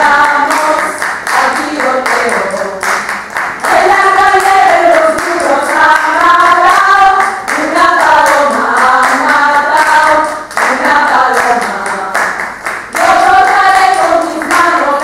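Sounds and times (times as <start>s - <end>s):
group of people singing: 0.0s - 15.0s
rhythmic hand-clapping: 0.0s - 15.0s.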